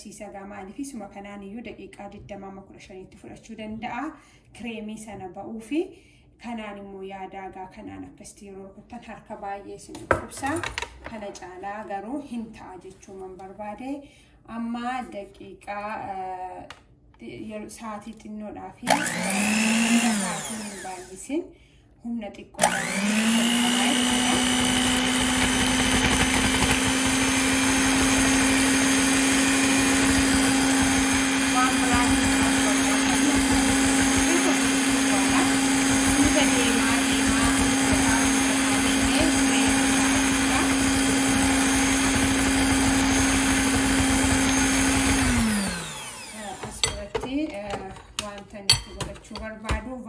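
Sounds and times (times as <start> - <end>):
electric hand mixer whirring: 18.9 - 21.3, 22.6 - 47.1.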